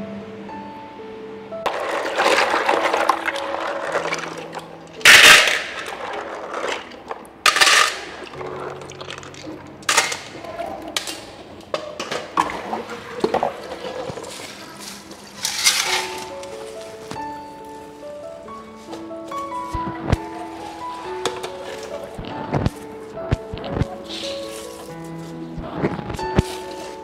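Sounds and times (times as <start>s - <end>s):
water splashing in metal pot: 1.7s - 10.2s.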